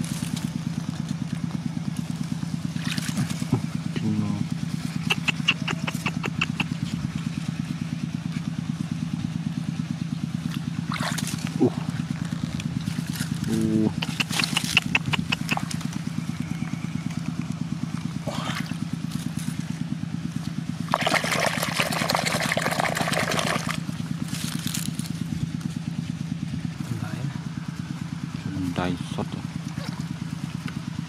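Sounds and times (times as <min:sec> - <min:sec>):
small engine running: 0:00.0 - 0:31.0
hand sloshing in wet mud: 0:02.0 - 0:03.8, 0:10.5 - 0:12.0, 0:17.2 - 0:19.6, 0:20.8 - 0:23.8.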